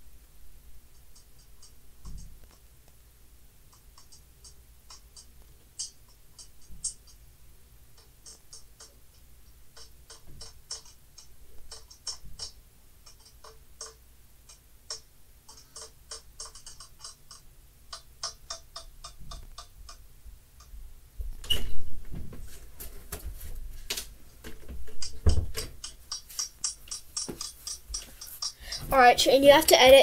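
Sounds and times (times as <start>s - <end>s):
rustling and knocking: 1.1s - 2.7s, 9.7s - 14.0s, 20.6s - 30.0s
light irregular clicking: 3.6s - 7.2s, 7.9s - 20.0s, 23.9s - 30.0s.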